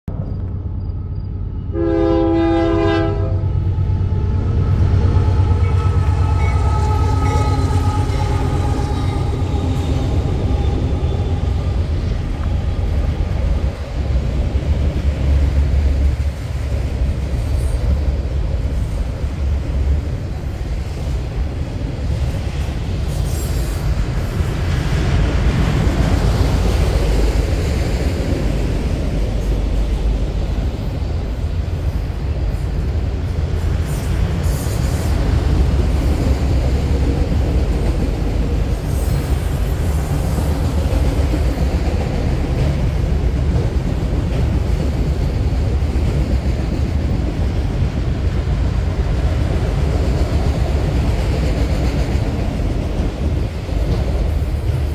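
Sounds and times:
locomotive rumble: 0:00.1 - 0:54.9
train wheels on rails: 0:00.1 - 0:54.9
train horn blast: 0:01.6 - 0:12.0.

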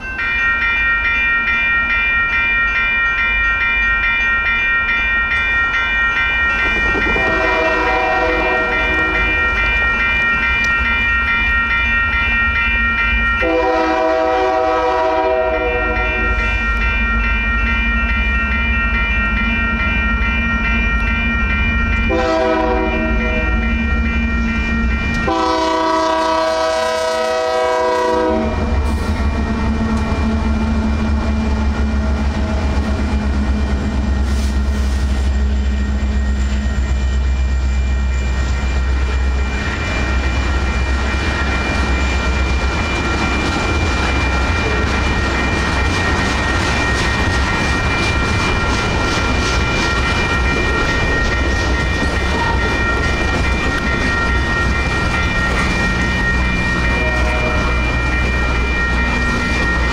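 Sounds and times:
crossing warning bells ringing: 0:00.0 - 0:59.9
train rumble: 0:00.0 - 0:59.9
locomotive air horn blasts: 0:07.2 - 0:09.3, 0:13.4 - 0:16.4, 0:22.1 - 0:23.6, 0:25.2 - 0:28.8, 0:57.0 - 0:57.8.

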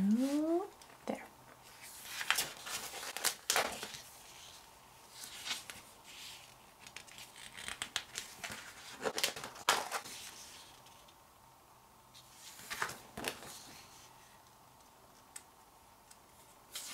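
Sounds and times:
packaging crinkling and rustling: 0:01.9 - 0:04.1, 0:06.9 - 0:10.4.

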